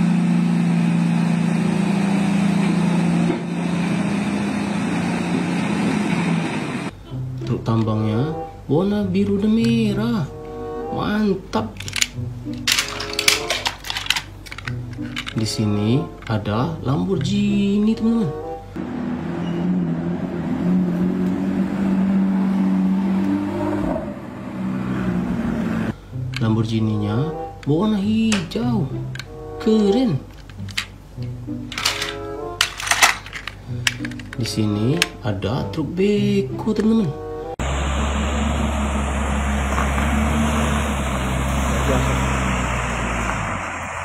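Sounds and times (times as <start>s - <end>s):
haul truck diesel engine drone: 0.0s - 11.2s, 16.8s - 30.0s, 31.3s - 44.0s
sports car engine driving past: 18.8s - 26.0s, 37.6s - 44.0s.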